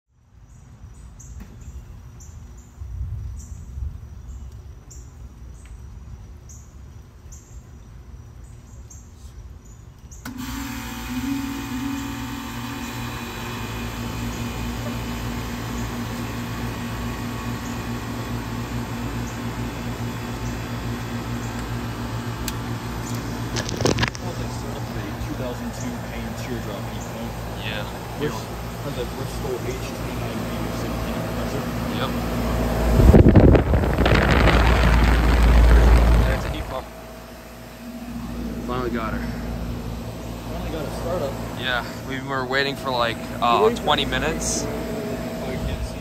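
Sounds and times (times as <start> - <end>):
compressor humming: 10.2 - 46.0
fan rushing: 10.2 - 46.0.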